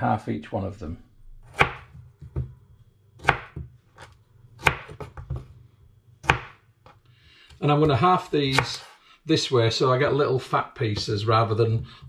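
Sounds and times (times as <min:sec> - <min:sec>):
knife chopping on wooden board: 0:01.4 - 0:02.6, 0:03.2 - 0:05.5, 0:06.2 - 0:07.0.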